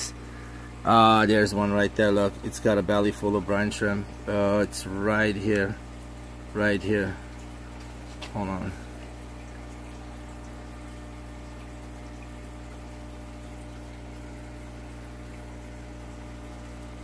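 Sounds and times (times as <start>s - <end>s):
aquarium equipment humming: 0.0s - 17.0s
water bubbling: 5.4s - 17.0s.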